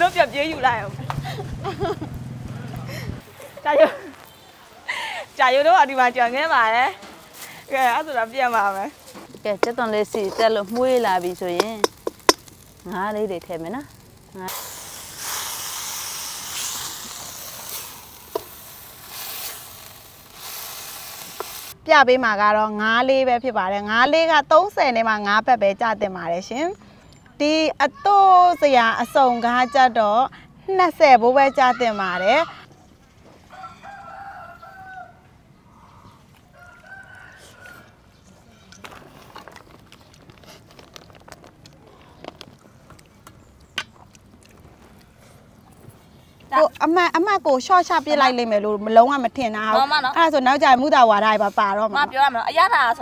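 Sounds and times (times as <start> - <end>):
hands mixing rice in steel bowl: 7.3 - 13.9
fish sizzling in a wok: 7.3 - 21.8
metal spatula scraping wok: 7.7 - 12.6
rooster crowing: 33.5 - 35.3, 36.5 - 38.0.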